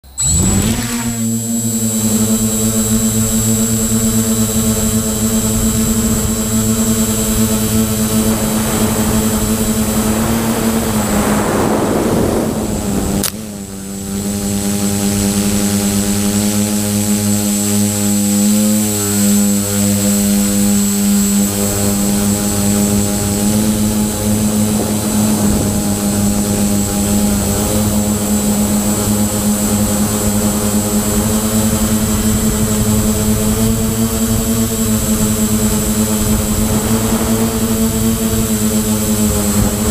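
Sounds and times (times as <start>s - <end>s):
quadcopter motors droning: 0.0s - 39.9s
thin high whine: 0.0s - 39.9s
sharp click: 13.2s - 13.4s.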